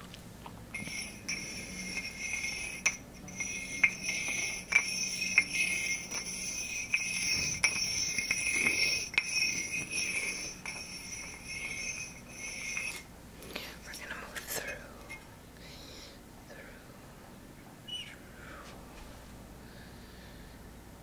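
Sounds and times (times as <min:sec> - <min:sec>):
high shimmering bell-like ringing: 0:00.7 - 0:13.1.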